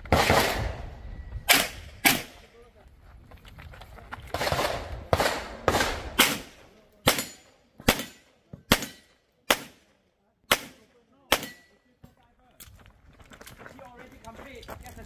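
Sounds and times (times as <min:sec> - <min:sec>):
pistol shots: 0:00.0 - 0:00.8, 0:01.5 - 0:02.4, 0:04.3 - 0:09.9, 0:10.5 - 0:11.7.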